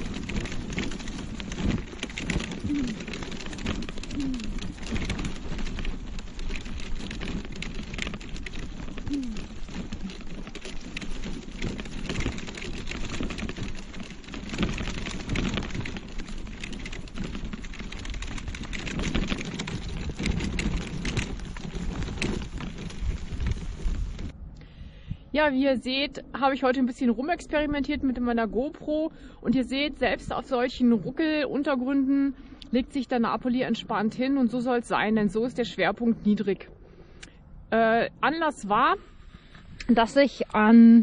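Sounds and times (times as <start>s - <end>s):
tyres crunching on gravel: 0.0s - 24.3s.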